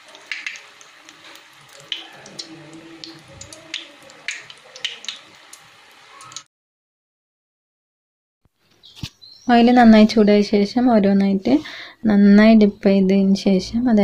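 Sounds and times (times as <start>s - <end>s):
deep-frying sizzle with pops: 0.0s - 6.5s.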